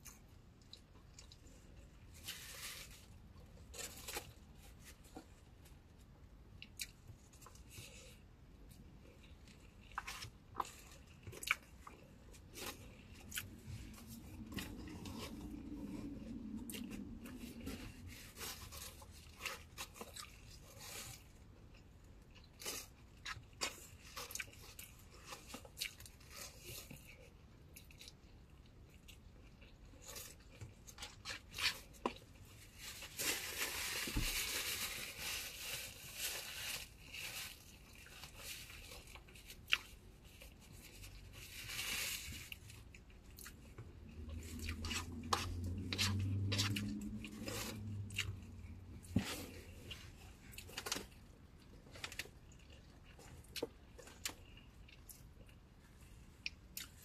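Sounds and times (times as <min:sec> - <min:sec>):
person chewing food: 0:00.0 - 0:02.3, 0:06.5 - 0:32.7, 0:37.5 - 0:41.2, 0:42.5 - 0:57.0
small clicks and crunches: 0:28.9 - 0:55.6.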